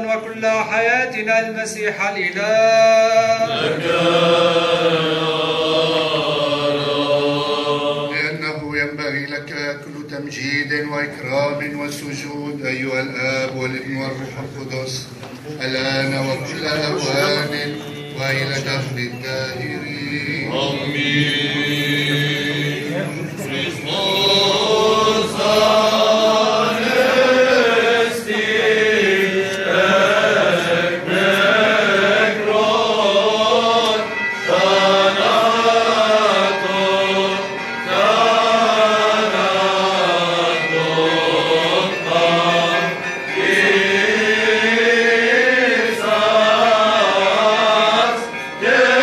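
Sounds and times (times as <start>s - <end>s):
choir chanting a hymn: 0.0s - 49.0s.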